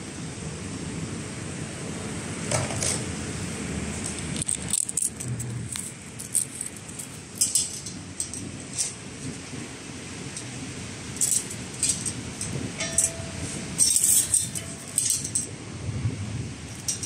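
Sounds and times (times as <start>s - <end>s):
metal stand rolling on concrete: 4.3s - 15.6s, 16.7s - 17.0s
light metallic clinks: 11.2s - 15.5s.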